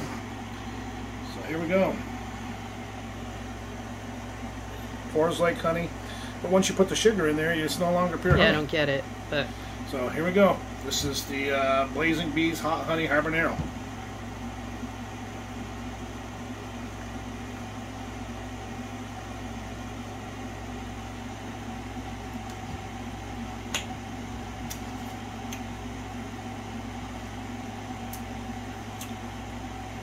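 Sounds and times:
machinery humming: 0.0s - 30.0s.

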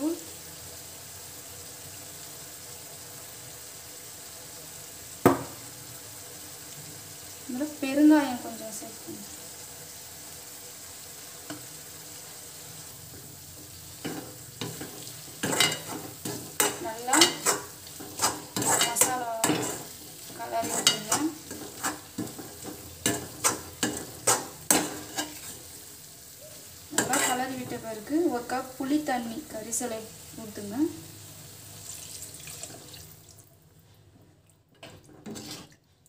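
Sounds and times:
masala sizzling in a pan: 0.0s - 36.0s
metal spoon scraping a pan: 14.0s - 25.8s, 26.9s - 27.8s, 34.8s - 35.8s.

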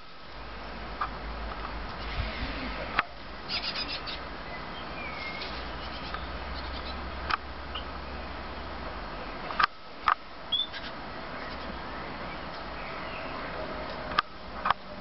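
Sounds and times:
steady background hiss: 0.0s - 15.0s
birds calling high and thin: 2.0s - 8.7s, 10.5s - 14.0s
sharp bird calls: 3.4s - 7.9s, 10.5s - 13.5s.

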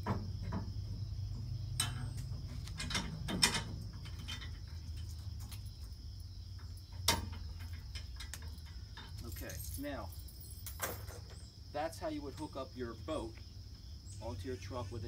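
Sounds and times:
insect chirring: 0.0s - 15.0s
metal clicks and clanks: 1.8s - 6.0s, 6.6s - 11.4s.

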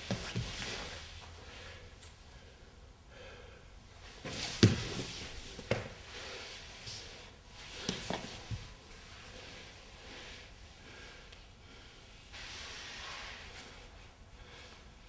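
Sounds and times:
soft rustling: 4.0s - 10.7s
body thumps on floor: 4.2s - 5.9s.

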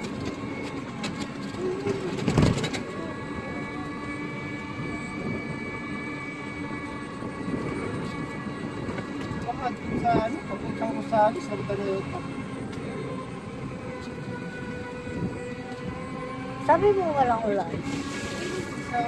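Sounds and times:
vehicle engine running: 0.0s - 19.0s
loud burst of noise: 17.8s - 18.9s.

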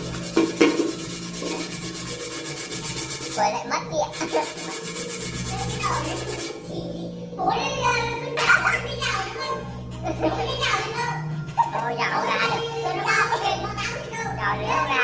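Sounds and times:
hand scrubbing rubber tyre: 0.0s - 3.4s, 4.1s - 6.6s.

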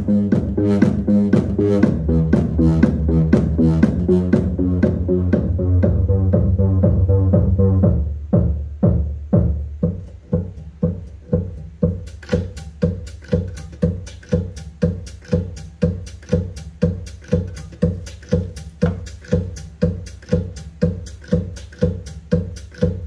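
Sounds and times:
electronic music with heavy bass: 0.0s - 23.0s.

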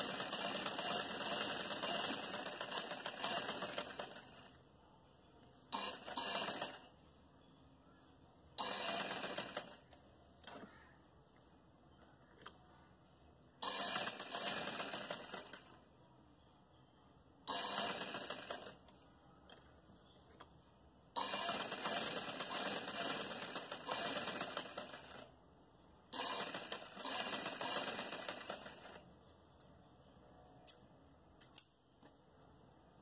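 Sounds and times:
sewing machine stitching: 0.0s - 4.6s, 5.7s - 6.9s, 8.6s - 10.7s, 13.6s - 15.8s, 17.5s - 18.8s, 21.2s - 25.3s, 26.1s - 29.0s.

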